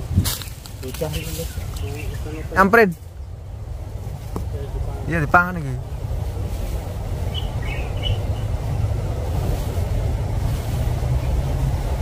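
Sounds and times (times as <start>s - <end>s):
steady low rumble: 0.0s - 12.0s
high bird chirps: 7.3s - 8.6s.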